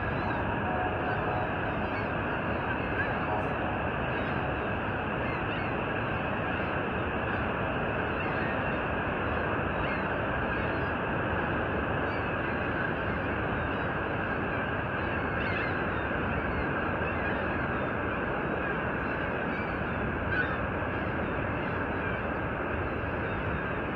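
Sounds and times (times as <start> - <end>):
faint bird calls: 19.0 - 22.2.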